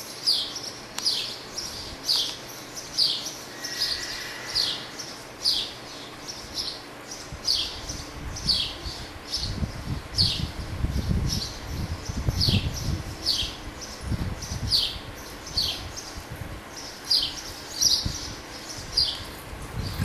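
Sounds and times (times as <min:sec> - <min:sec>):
bird chirping: 0:00.0 - 0:10.5, 0:11.3 - 0:20.0.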